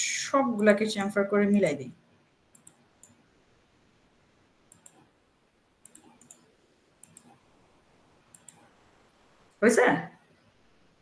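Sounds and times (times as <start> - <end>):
faint computer mouse clicks: 2.5 - 3.2, 4.7 - 5.1, 5.8 - 7.4, 8.3 - 8.7.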